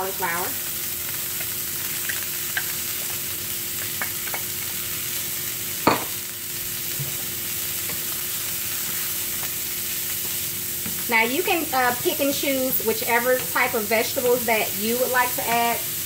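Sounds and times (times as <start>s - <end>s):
vegetables sizzling in oil: 0.0s - 16.0s
knock against a pan: 5.9s - 6.2s.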